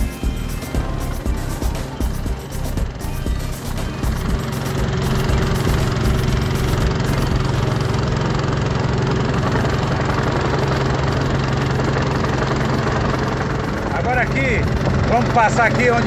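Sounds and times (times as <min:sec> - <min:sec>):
boat motor humming: 0:00.0 - 0:16.0
water and wind rushing: 0:04.0 - 0:16.0.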